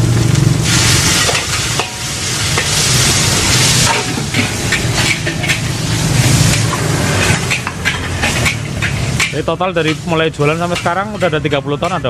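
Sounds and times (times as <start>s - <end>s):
food sizzling in a wok: 0.0s - 12.0s
metal spatula scraping a wok: 0.6s - 12.0s
spatula clinking on wok: 6.4s - 12.0s.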